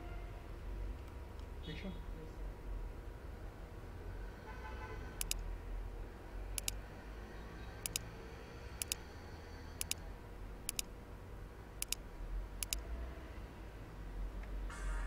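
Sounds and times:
computer mouse clicking: 5.2 - 5.4, 6.6 - 6.8, 7.8 - 8.1, 8.8 - 9.0, 9.8 - 10.0, 10.6 - 10.9, 11.8 - 12.0, 12.6 - 12.8.

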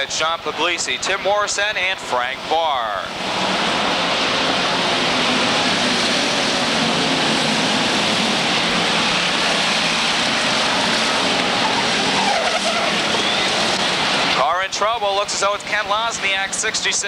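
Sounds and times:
race car engines: 0.0 - 17.0.

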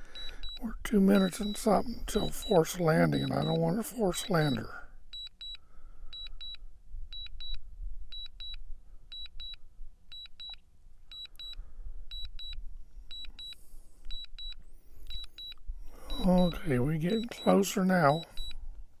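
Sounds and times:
high double beep warning: 0.0 - 5.6, 6.2 - 6.6, 10.2 - 18.6.

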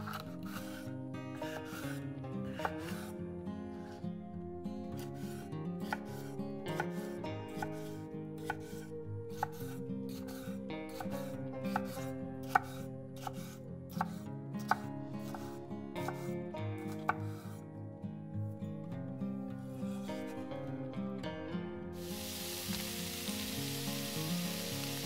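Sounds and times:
soft background music: 0.0 - 25.0
knife chopping on cutting board: 0.1 - 0.9, 2.6 - 3.1, 7.6 - 17.5.

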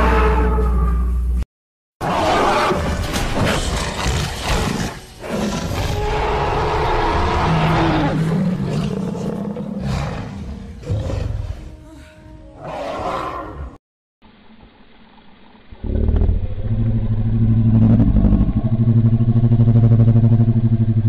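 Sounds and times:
dinosaur roars: 2.0 - 11.7, 15.7 - 20.6
growls: 2.0 - 11.7.

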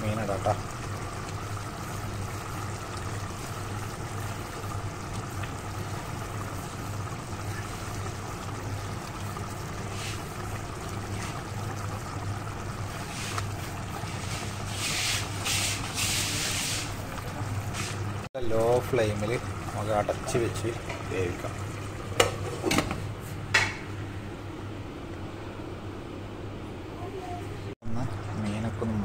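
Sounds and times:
curry bubbling in a pan: 0.0 - 23.0.

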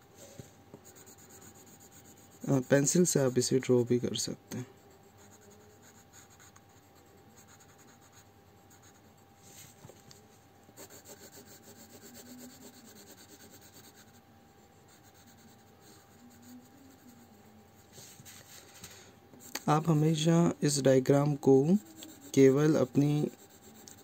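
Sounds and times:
pencil shading on paper: 0.8 - 3.4, 4.8 - 9.1, 10.8 - 18.2, 21.4 - 24.0.

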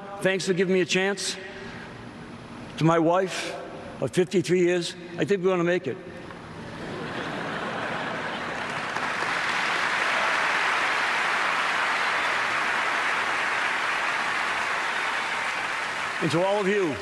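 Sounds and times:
audience applauding: 7.7 - 17.0.

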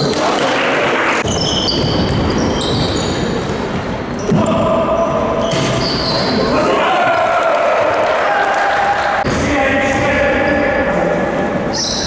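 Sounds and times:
basketball bouncing: 1.2 - 3.1
sneakers squeaking on floor: 1.2 - 6.6, 11.7 - 12.0.

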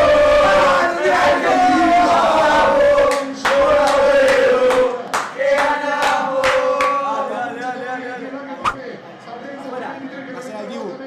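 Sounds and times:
crowd chanting in unison: 0.0 - 8.1
rhythmic hand clapping: 2.3 - 7.0.

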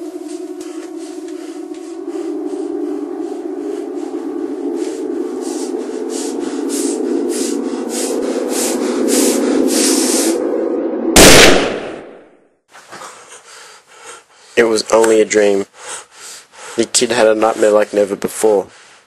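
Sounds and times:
pulsing swishing hiss: 0.0 - 11.8
low hum: 0.0 - 12.6
gunshot: 11.2 - 12.2.

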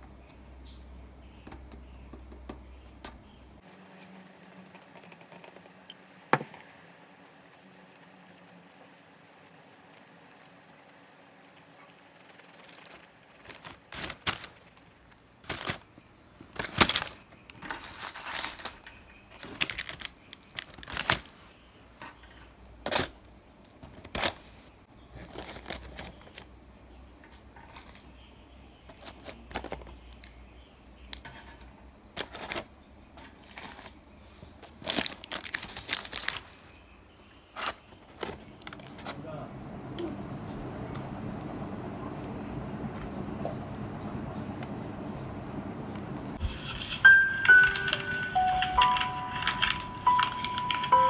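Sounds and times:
crinkling rustles: 7.6 - 26.5, 27.3 - 28.2, 28.9 - 30.2, 31.3 - 36.8, 46.3 - 51.0.

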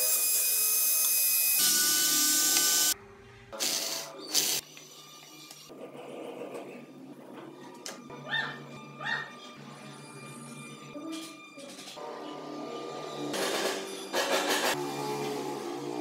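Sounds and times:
rotary tool grinding wood: 0.0 - 3.0.

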